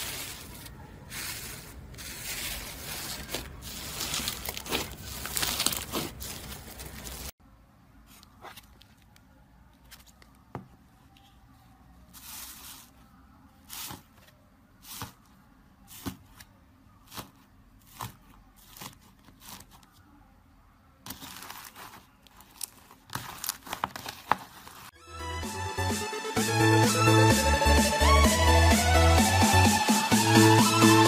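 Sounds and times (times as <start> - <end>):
slime crackling and tearing: 2.0 - 7.3.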